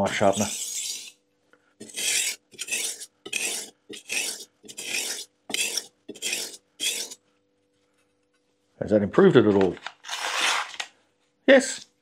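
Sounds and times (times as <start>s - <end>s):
knife scraping on whetstone: 0.0s - 1.2s, 1.8s - 7.2s.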